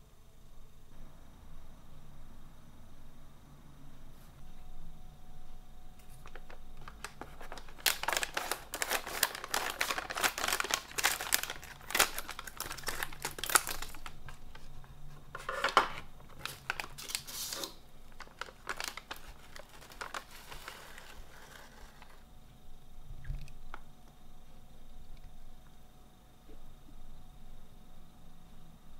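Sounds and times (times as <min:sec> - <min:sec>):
snack bag crinkling: 0:06.0 - 0:22.2.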